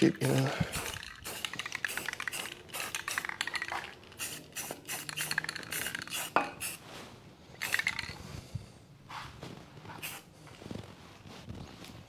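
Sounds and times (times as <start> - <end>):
spray paint can rattling: 0.0 - 6.8, 7.6 - 8.2, 10.0 - 10.2.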